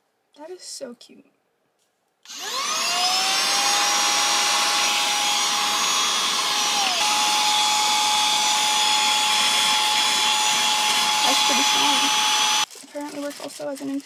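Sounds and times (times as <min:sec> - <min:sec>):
handheld vacuum motor whine: 0:02.3 - 0:12.7.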